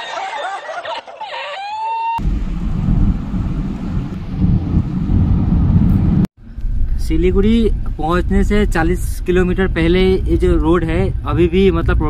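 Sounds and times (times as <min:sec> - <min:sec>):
car cabin road and wind noise: 0:02.2 - 0:12.0.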